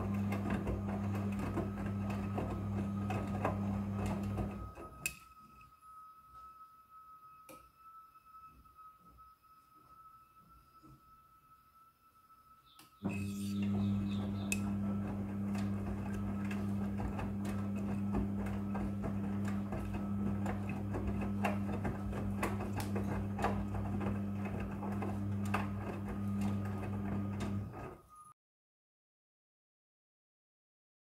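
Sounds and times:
washing machine hum: 0.0s - 5.0s, 13.0s - 28.1s.

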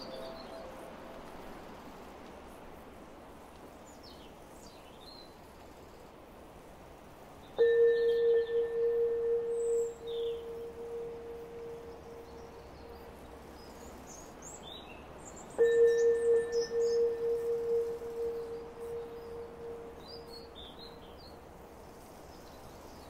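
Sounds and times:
ambient synth music: 0.0s - 1.2s, 7.6s - 13.6s, 15.6s - 21.0s
soft background hiss: 0.0s - 23.0s
birds chirping: 7.6s - 21.4s.

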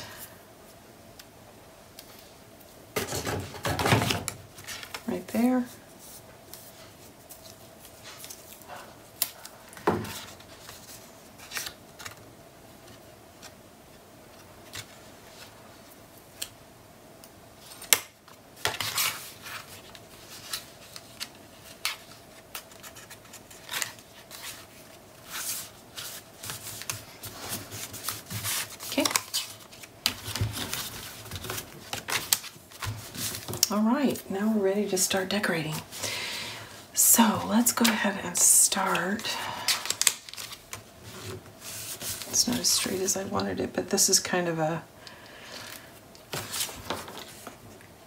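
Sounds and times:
paper rustling and sliding: 18.6s - 33.6s, 38.8s - 43.0s, 45.6s - 47.7s.

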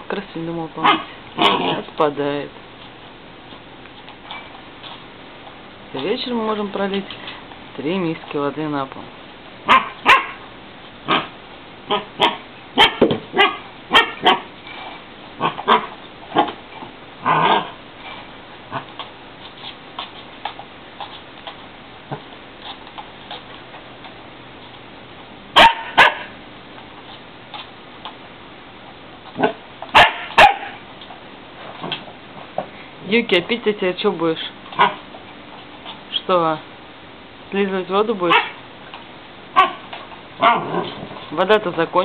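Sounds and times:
husky barking and yipping: 0.8s - 1.9s, 9.7s - 10.4s, 11.9s - 14.5s, 15.4s - 16.6s, 25.6s - 26.4s, 29.4s - 30.8s, 34.8s - 35.1s, 38.3s - 38.6s, 39.5s - 41.0s.

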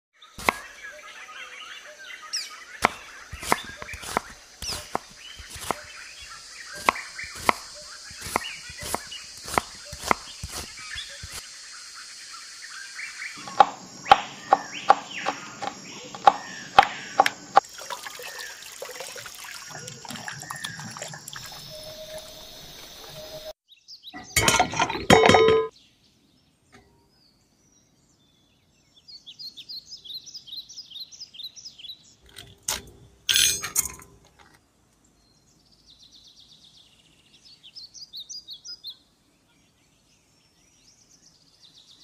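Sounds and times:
birds chirping: 0.2s - 42.0s
sharp knocks: 13.4s - 17.6s.

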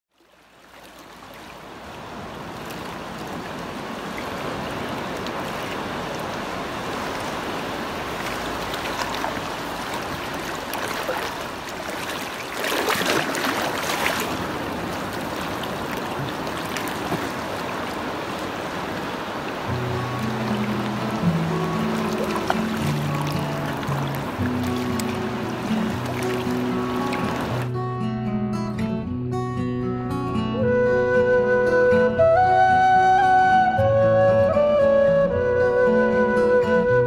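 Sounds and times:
waves lapping among rocks: 0.2s - 27.7s
wave splash: 0.2s - 27.8s.

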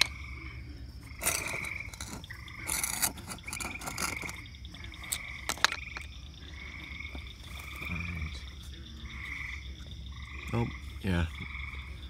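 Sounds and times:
frogs trilling: 0.0s - 12.0s
glass jar clicks: 1.2s - 4.4s.

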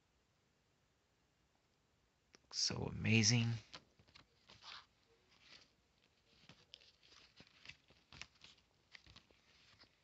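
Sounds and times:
paper pages rustling: 3.6s - 10.0s.

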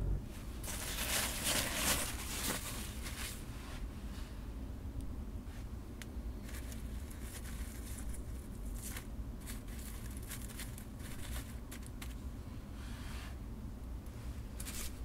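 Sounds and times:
low steady rumble: 0.0s - 15.0s
coals crackling and crunching: 6.4s - 12.2s.

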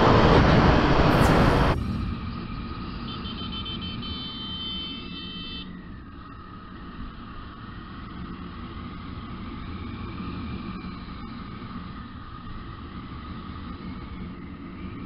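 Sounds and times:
wind and road noise: 0.0s - 15.0s.

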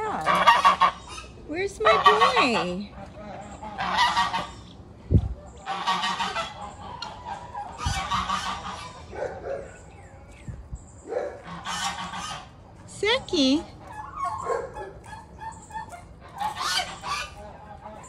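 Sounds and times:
goose honking: 0.0s - 4.8s, 5.6s - 9.1s, 11.4s - 12.6s, 13.7s - 18.0s.

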